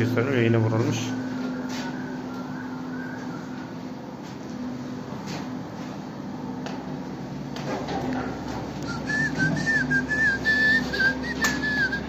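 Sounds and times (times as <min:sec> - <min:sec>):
steady low hum: 0:00.0 - 0:12.0
person whistling a wavering tune: 0:01.5 - 0:03.8, 0:08.8 - 0:12.0.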